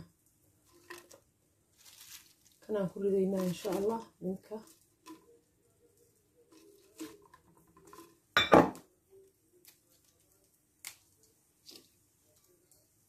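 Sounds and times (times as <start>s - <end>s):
kitchenware clattering: 7.0s - 8.9s
glass jar and kitchenware clinking: 7.8s - 8.8s.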